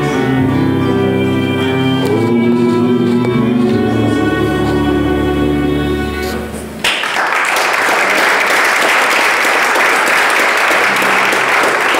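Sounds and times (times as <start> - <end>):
audience applause: 6.8 - 11.9.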